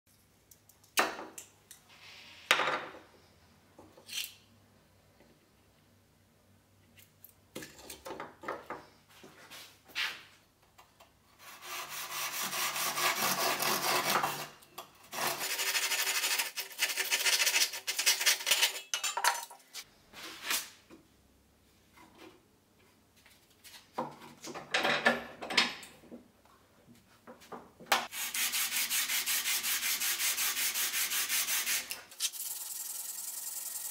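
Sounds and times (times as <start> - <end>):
hand saw rasping through bone: 11.4 - 14.5, 15.1 - 18.5
bone rubbed on sandpaper: 28.1 - 31.9.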